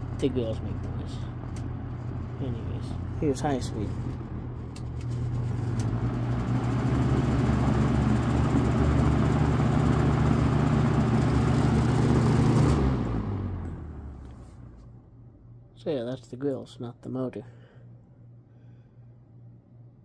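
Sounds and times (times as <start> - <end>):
box fan motor hum: 0.0 - 18.8
plastic fan grills rattling: 3.8 - 12.8.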